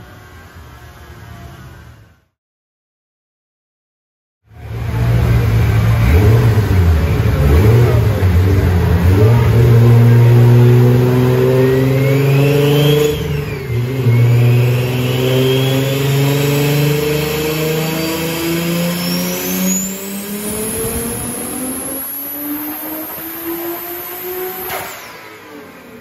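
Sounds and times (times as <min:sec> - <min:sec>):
car engine revving on dyno: 0:04.5 - 0:26.0
turbo whistle: 0:11.7 - 0:16.8, 0:17.8 - 0:22.8.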